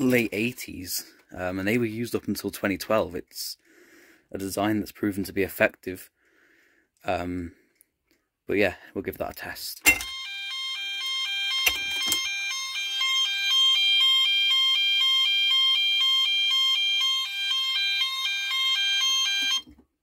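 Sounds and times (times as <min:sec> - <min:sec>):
fire alarm alternating two pitches: 0:09.9 - 0:19.7
steady high alarm tone: 0:09.9 - 0:19.7.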